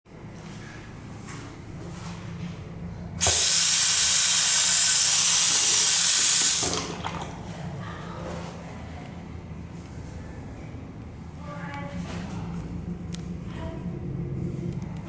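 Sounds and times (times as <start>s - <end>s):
water running into sink: 3.2s - 7.5s.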